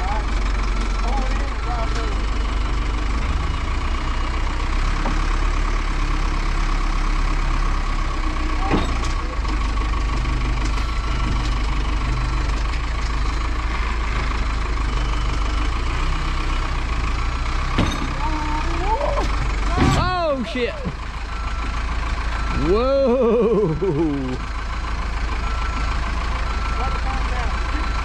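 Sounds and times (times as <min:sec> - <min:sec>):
forklift engine running: 0:00.0 - 0:28.0.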